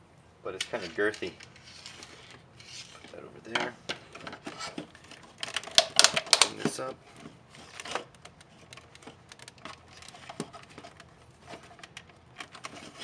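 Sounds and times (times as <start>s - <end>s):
sharp plastic knocks: 5.4s - 6.8s
plastic clicks and taps: 5.6s - 6.7s.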